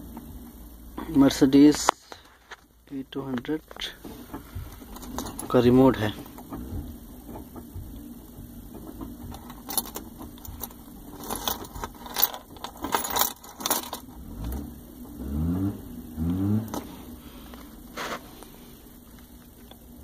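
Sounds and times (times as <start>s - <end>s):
keys jangling and clicking: 4.8s - 6.6s, 8.9s - 14.2s.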